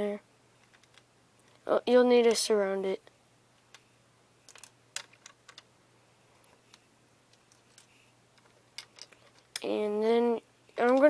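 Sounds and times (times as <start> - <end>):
plastic bricks clicking: 0.6 - 1.1, 4.5 - 5.7, 6.7 - 9.7.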